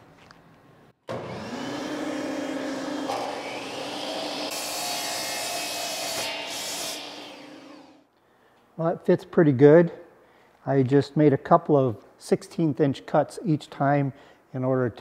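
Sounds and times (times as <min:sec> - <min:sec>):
miter saw motor whining: 0:01.1 - 0:08.0
saw blade cutting wood: 0:01.1 - 0:08.0.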